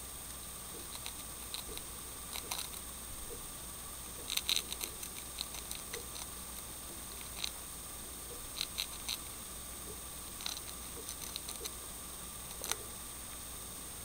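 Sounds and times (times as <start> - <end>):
hamster nibbling clicks: 0.7 - 3.4, 4.1 - 7.6, 8.3 - 11.8, 12.5 - 13.0.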